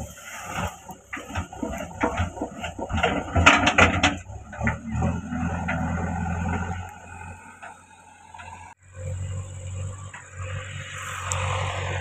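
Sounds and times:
earth clods clattering: 0.0 - 6.8
diesel engine working under load: 0.0 - 12.0.

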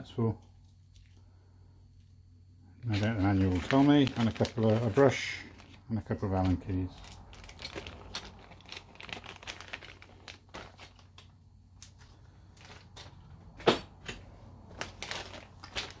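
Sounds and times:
plastic bag rustling: 2.8 - 16.0.

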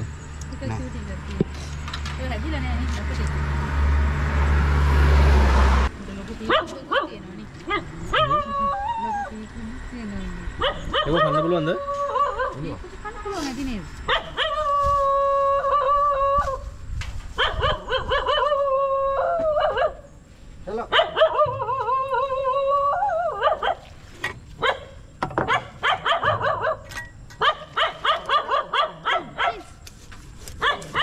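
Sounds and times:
dog yelping: 6.5 - 9.4, 10.6 - 12.8, 14.1 - 16.6, 17.4 - 20.1, 20.9 - 23.9, 24.6 - 29.7, 30.6 - 31.0
dog howling: 8.1 - 9.4, 10.6 - 12.7, 17.4 - 20.0, 21.0 - 23.7.

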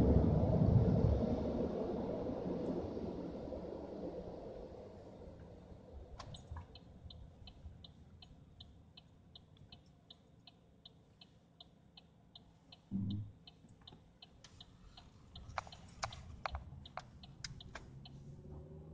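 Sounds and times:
turn signal ticking: 6.1 - 18.9
sharp clicks: 15.3 - 17.9.

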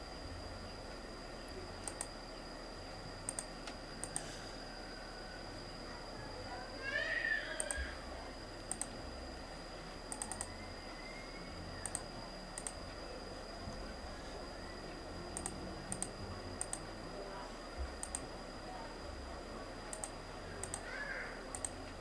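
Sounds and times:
faint high-pitched whine: 0.0 - 22.0
computer mouse clicking: 1.8 - 2.1, 3.3 - 4.4, 7.6 - 7.9, 8.7 - 9.0, 10.1 - 10.6, 11.8 - 13.0, 15.3 - 16.9, 18.0 - 18.3, 19.9 - 20.9, 21.5 - 22.0.

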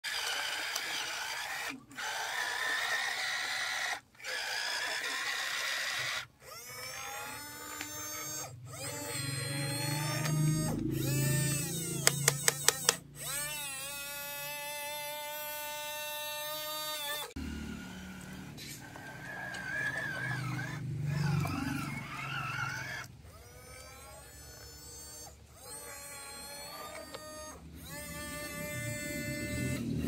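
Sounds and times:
small electric gear motors whining: 0.0 - 30.0
sharp clicks: 11.8 - 13.1.

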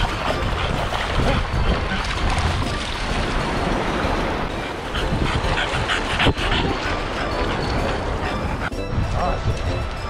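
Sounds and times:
surf splashing over sand: 0.0 - 5.8
wind on microphone: 0.0 - 10.0.

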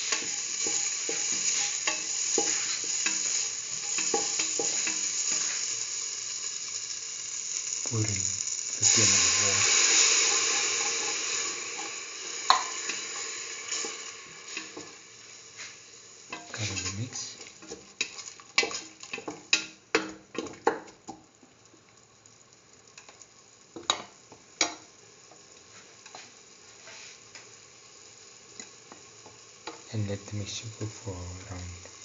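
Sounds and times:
water sizzling in hot oil: 0.0 - 32.0.

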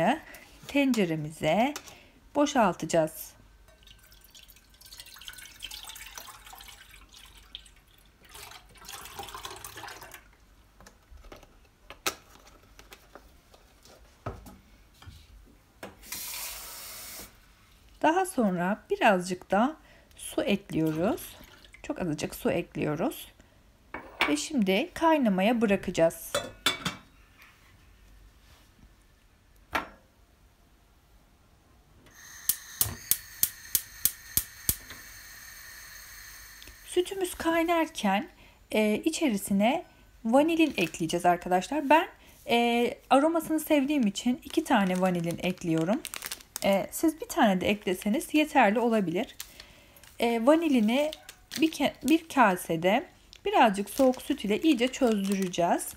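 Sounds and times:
milk pouring into pot: 3.7 - 10.4, 20.8 - 21.9
gas hissing from burner: 16.0 - 17.4, 32.1 - 37.0
short steady hiss: 16.0 - 17.5
spark igniter clicking: 32.4 - 34.8.

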